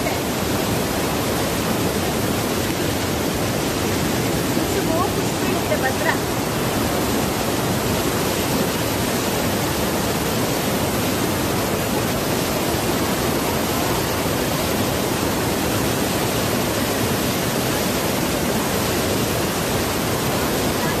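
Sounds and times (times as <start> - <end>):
waterfall rushing: 0.0 - 21.0.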